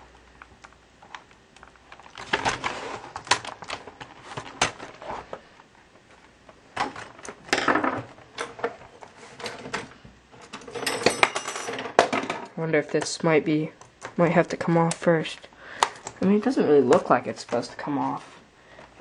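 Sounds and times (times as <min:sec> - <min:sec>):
crackling scrapes: 0:02.0 - 0:03.4.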